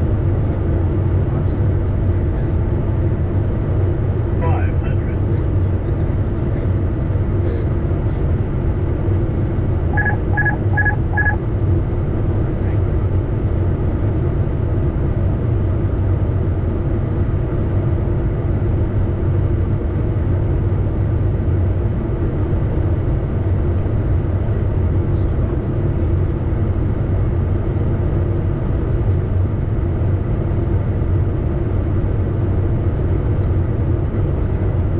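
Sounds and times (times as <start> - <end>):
jet engine and airflow rumble: 0.0 - 34.9
short electronic beeps: 10.0 - 11.4.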